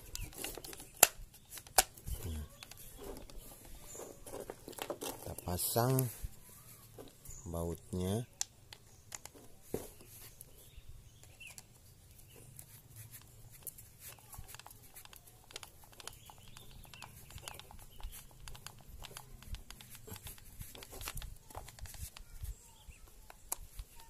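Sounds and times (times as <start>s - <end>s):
screwdriver clicks and scrapes: 0.0s - 6.0s, 12.5s - 24.0s
tool handling noises: 0.0s - 24.0s.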